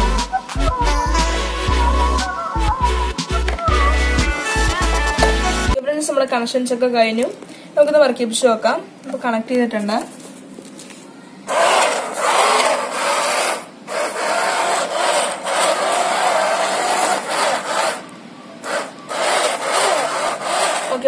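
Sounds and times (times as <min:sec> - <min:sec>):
small toy motors whirring: 0:11.5 - 0:21.0.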